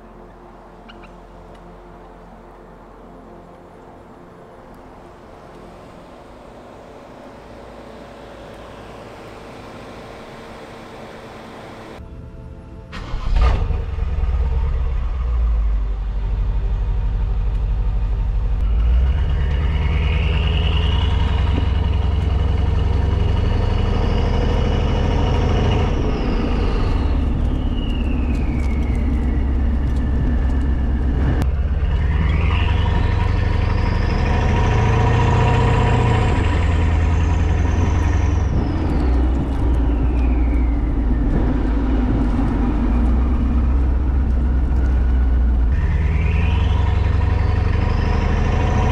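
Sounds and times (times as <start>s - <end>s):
turbo whine: 4.7s - 48.9s
car exhaust rumble: 13.0s - 48.9s.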